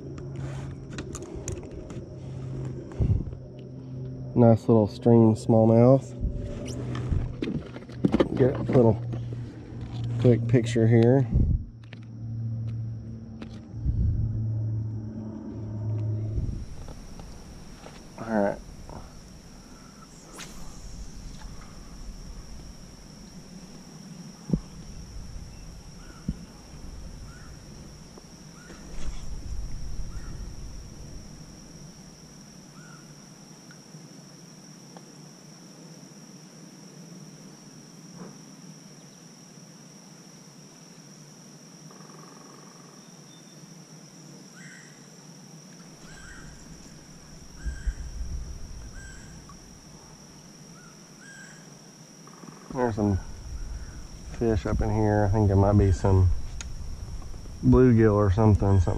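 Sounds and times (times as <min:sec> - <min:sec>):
low rumble: 0:00.0 - 0:32.2, 0:53.2 - 0:58.9
insects droning: 0:00.0 - 0:58.9
faint bird chirps: 0:19.6 - 0:22.0, 0:32.7 - 0:33.2, 0:46.0 - 0:47.0, 0:47.6 - 0:48.1, 0:48.9 - 0:49.6, 0:50.7 - 0:51.7.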